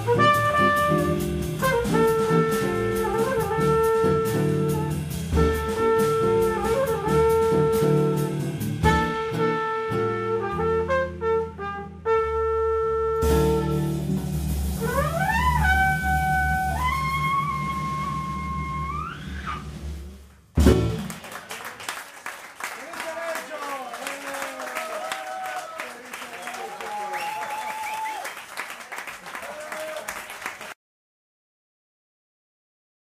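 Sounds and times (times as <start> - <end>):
drum kit cymbals: 0.0 - 9.8, 13.2 - 21.1
trumpet long notes: 0.0 - 14.1, 14.8 - 19.8
double bass: 0.0 - 21.2.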